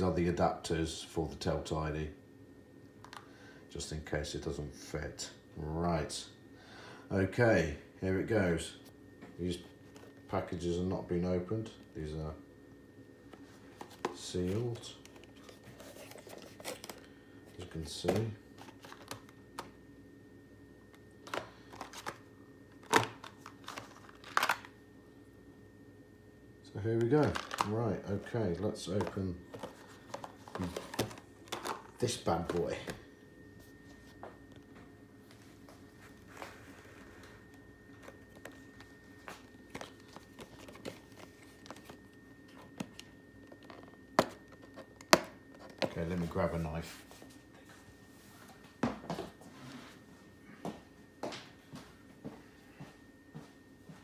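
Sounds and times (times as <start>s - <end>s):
blister packs tapping and rustling: 27.2s - 27.8s.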